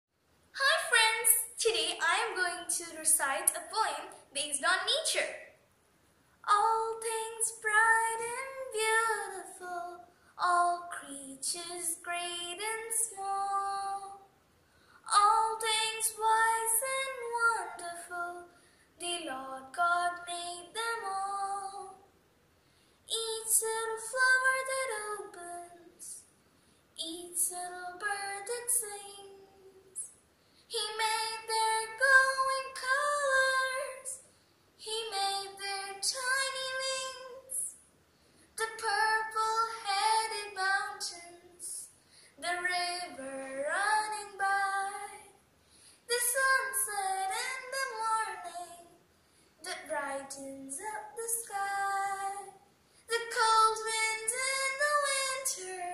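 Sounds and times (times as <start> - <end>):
girl singing: 0.6 - 5.6, 6.4 - 14.4, 15.0 - 22.2, 23.1 - 26.3, 27.0 - 30.1, 30.7 - 37.8, 38.6 - 45.5, 46.1 - 55.9.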